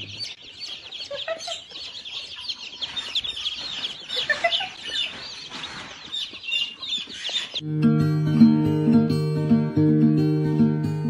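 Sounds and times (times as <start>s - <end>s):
baby chicks peeping: 0.0s - 7.7s.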